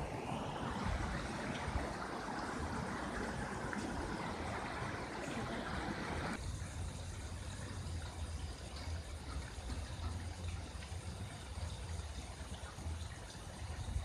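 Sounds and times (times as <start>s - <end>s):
running water rushing: 0.0s - 14.0s.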